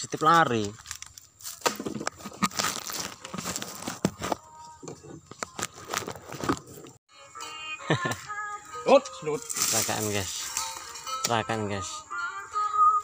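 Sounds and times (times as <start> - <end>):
fruit bunches crunching: 0.0 - 7.0, 9.4 - 10.9
footsteps on dry leaf litter: 2.2 - 4.5, 9.3 - 11.0.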